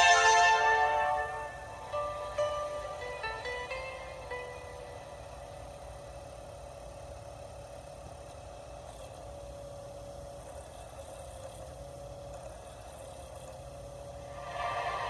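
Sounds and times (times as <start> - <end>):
music: 0.0 - 5.7, 14.2 - 15.0
faint low hum and hiss: 0.0 - 15.0.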